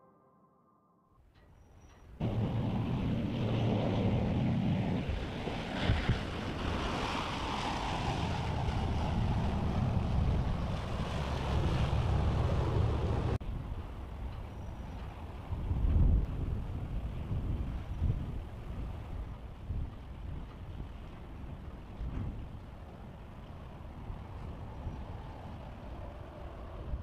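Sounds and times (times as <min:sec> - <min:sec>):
choppy water: 0:01.8 - 0:27.0
wind buffeting microphone: 0:02.1 - 0:27.0
motor boat passing: 0:02.2 - 0:13.4, 0:20.8 - 0:27.0.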